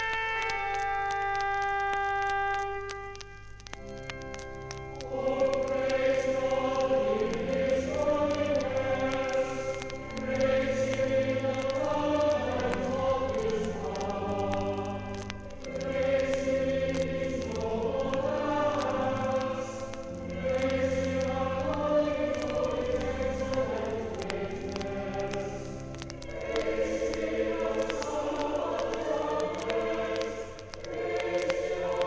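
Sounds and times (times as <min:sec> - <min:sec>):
choir singing sustained chords: 0:00.0 - 0:32.0.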